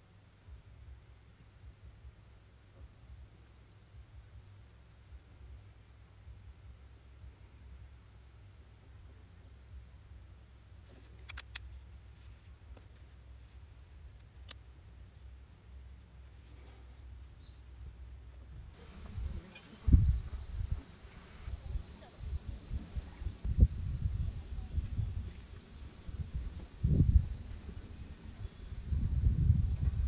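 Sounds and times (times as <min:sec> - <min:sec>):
single click: 0:11.2 - 0:11.7
high insect chirring: 0:18.8 - 0:30.0
wind buffeting microphone: 0:18.9 - 0:20.8, 0:21.4 - 0:30.0.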